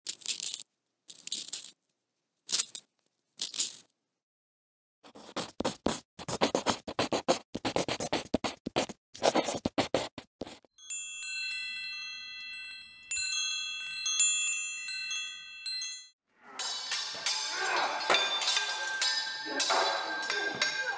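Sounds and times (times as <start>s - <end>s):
pencil sharpener shaving: 5.1s - 10.7s
scribbling on paper: 5.1s - 10.7s
wind chime ringing: 10.7s - 20.9s.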